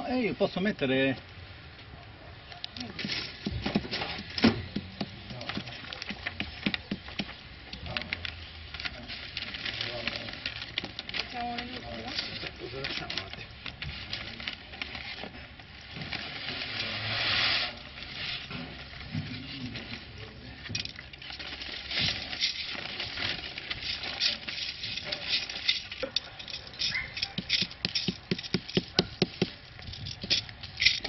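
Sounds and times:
stones clicking and rattling: 2.7 - 15.3, 17.9 - 31.0
plastic sheeting rustling: 2.8 - 27.7
soil scraping through a sieve: 13.8 - 20.6.

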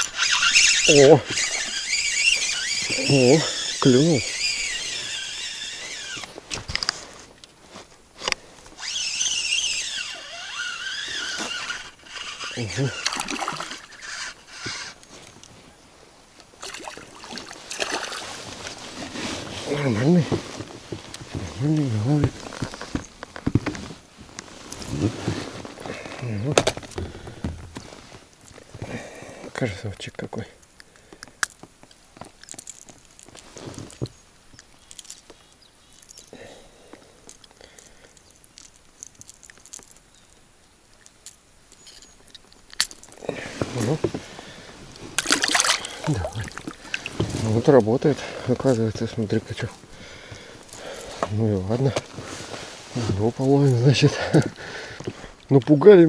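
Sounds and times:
water splashing: 13.0 - 14.0, 16.6 - 18.4, 45.2 - 47.2
handling noises: 16.4 - 28.9, 30.6 - 56.0.

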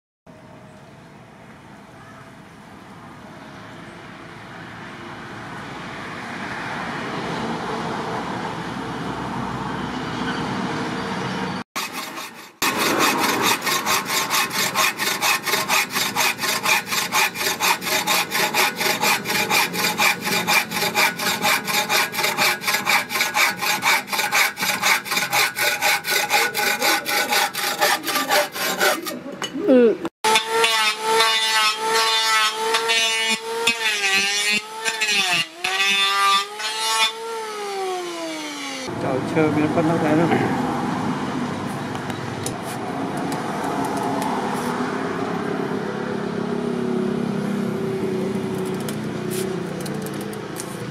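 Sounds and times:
hand saw cutting wood: 11.8 - 29.3, 30.2 - 38.9
electric planer motor whine: 30.3 - 38.9.

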